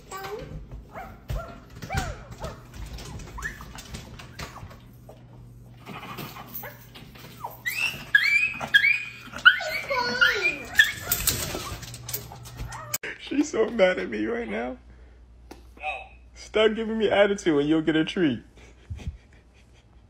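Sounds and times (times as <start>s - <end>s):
dog whining: 1.0s - 4.9s, 5.8s - 13.0s.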